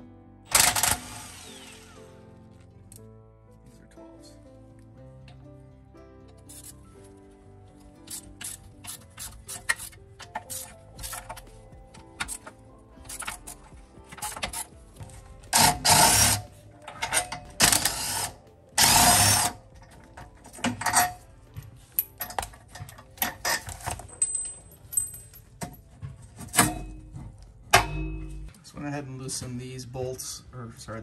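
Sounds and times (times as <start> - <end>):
impact wrench bursts: 0.5 - 2.0, 15.6 - 16.4, 17.6 - 19.6.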